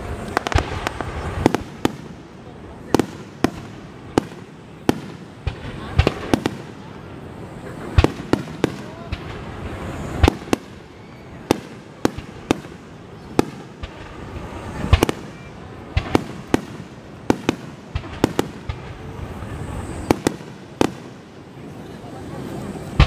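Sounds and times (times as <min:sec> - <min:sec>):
background murmur: 0:00.0 - 0:23.0.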